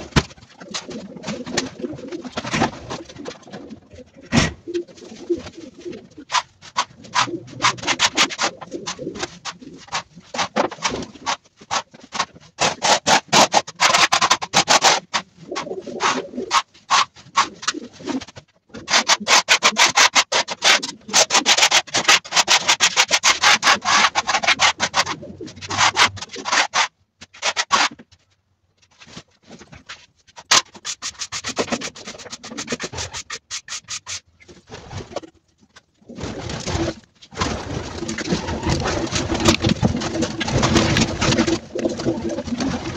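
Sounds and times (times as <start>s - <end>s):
pigeons cooing: 0.0s - 10.1s, 15.4s - 16.6s, 23.9s - 26.2s, 37.9s - 42.9s.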